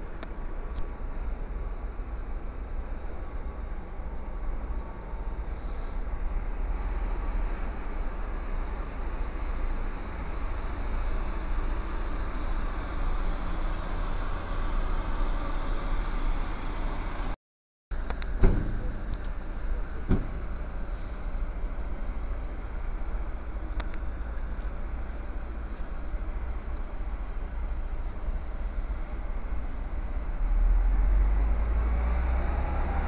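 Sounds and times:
coach engine rumble: 0.0s - 17.4s, 18.0s - 31.4s
road noise: 0.0s - 33.0s
sharp knocks: 18.4s - 19.0s, 20.1s - 20.5s.

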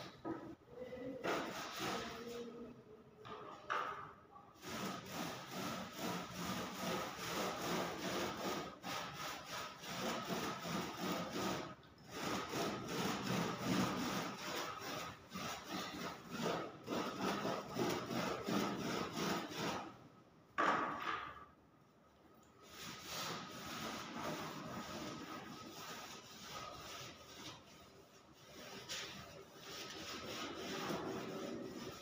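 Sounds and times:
polishing applicator rubbing wood: 4.6s - 19.9s, 22.6s - 32.0s.

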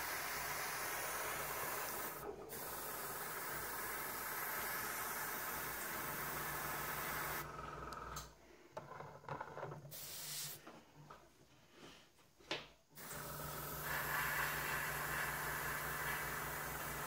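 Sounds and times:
airbrush spraying hiss: 0.0s - 7.4s, 10.0s - 10.6s, 13.8s - 17.0s
air compressor hum: 0.0s - 7.8s, 13.0s - 17.0s.

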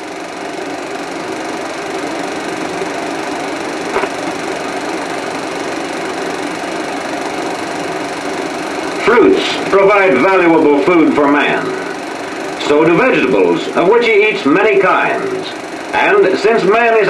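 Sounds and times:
film soundtrack hiss and hum: 0.0s - 17.0s.

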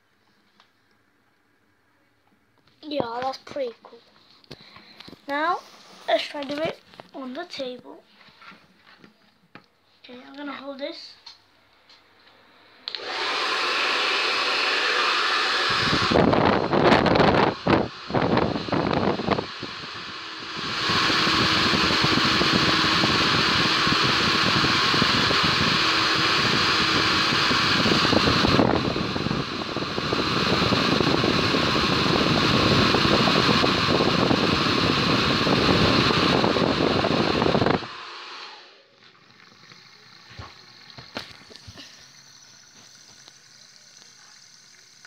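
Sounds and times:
hair dryer blowing air: 12.4s - 45.0s.

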